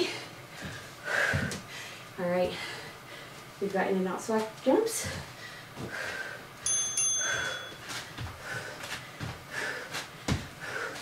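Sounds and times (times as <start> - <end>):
feet thudding on exercise mat: 0.0 - 1.7, 7.4 - 11.0
woman breathing heavily: 0.0 - 3.6, 4.8 - 11.0.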